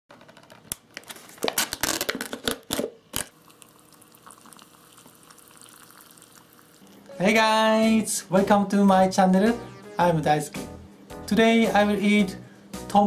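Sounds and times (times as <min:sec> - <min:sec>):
foil lid crinkling and tearing: 0:00.9 - 0:03.3
water pouring into cup: 0:03.4 - 0:07.0.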